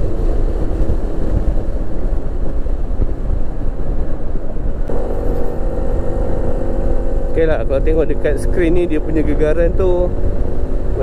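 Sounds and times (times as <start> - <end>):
wind rush on microphone: 0.0 - 11.0
scooter engine: 4.9 - 11.0.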